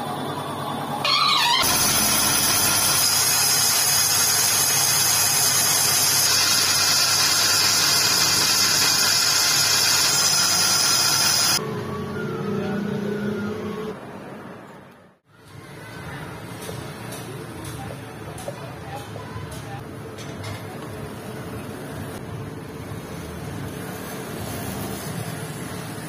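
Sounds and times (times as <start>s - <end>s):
lathe cutting metal hiss: 1.4s - 11.6s.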